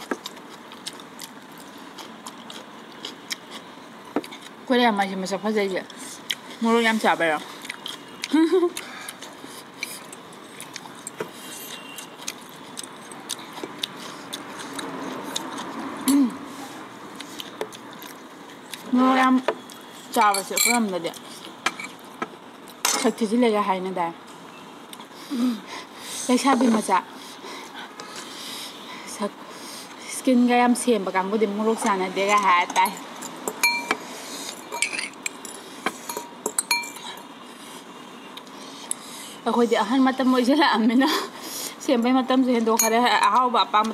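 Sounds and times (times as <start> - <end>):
person chewing: 0.0 - 4.6, 5.9 - 6.6, 7.5 - 16.2, 17.1 - 18.9
cutlery clinking against glass bowl: 20.2 - 20.8, 32.3 - 34.0, 34.6 - 37.2, 42.8 - 43.2
utensils tapping and clicking: 34.6 - 37.2.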